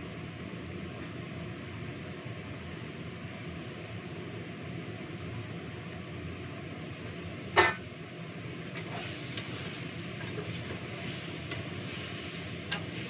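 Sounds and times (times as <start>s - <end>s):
steady background noise: 0.0s - 13.0s
metal cookware clank: 7.6s - 7.8s
spatula tapping a wok: 11.4s - 11.8s, 12.6s - 13.0s.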